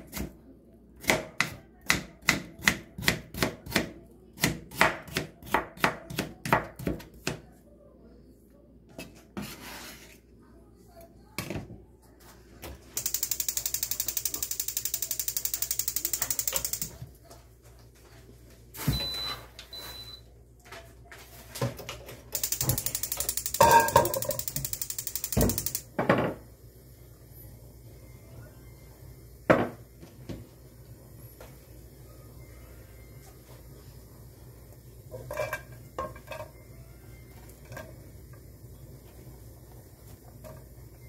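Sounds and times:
ratchet-like clicking: 13.0 - 16.9, 22.4 - 25.8.

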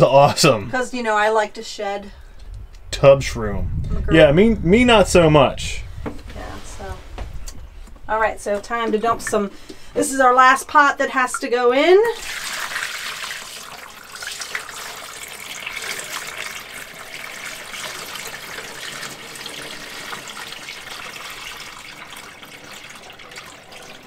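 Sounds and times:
water running down drain: 6.0 - 24.0
water splashing into shower pan: 11.1 - 24.0.

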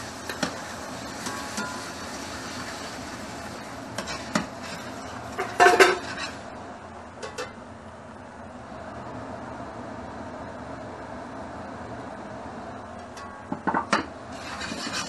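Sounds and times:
ladle knocking in a wok: 13.2 - 14.1.

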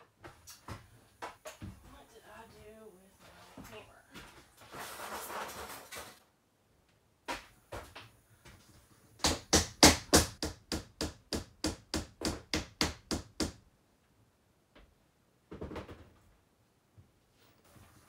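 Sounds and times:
hammering on wood: 9.2 - 13.6.

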